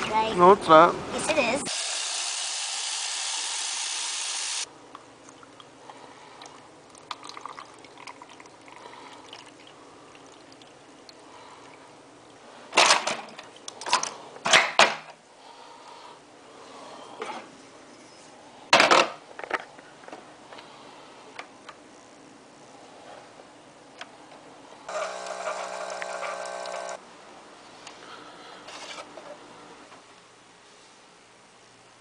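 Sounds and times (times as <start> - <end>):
faucet running into plastic cup: 25.0 - 27.0.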